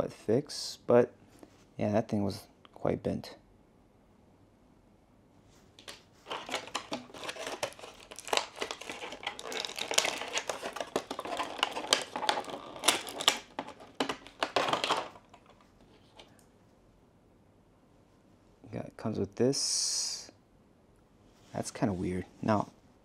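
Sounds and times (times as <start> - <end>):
plastic blister tray crinkling: 5.8 - 16.3.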